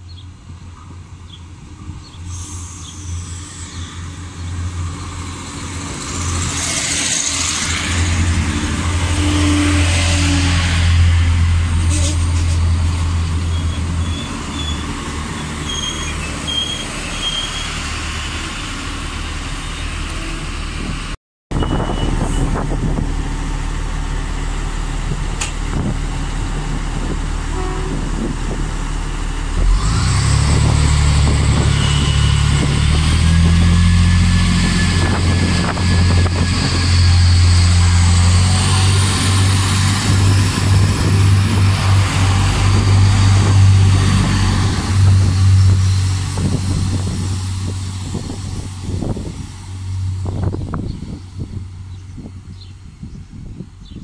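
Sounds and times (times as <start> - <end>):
diesel train engines humming: 0.0 - 54.0
diesel engines revving: 1.6 - 53.6
brakes squealing: 11.7 - 20.9, 29.5 - 53.2.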